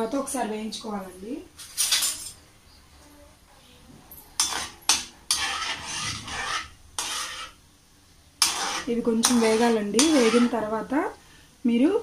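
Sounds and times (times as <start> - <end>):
frying in hot oil: 4.1 - 12.0
metal spoon scraping metal pan: 4.4 - 7.6, 8.4 - 10.7.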